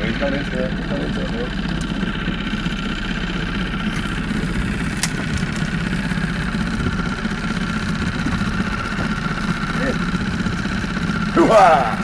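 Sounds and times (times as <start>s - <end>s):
outboard motor idling: 0.0s - 12.0s.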